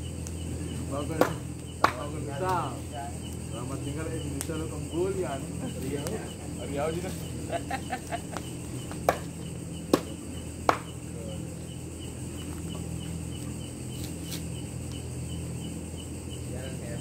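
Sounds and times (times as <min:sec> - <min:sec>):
crickets chirping: 0:00.0 - 0:17.0
sharp knocks: 0:01.2 - 0:02.1, 0:09.9 - 0:11.0.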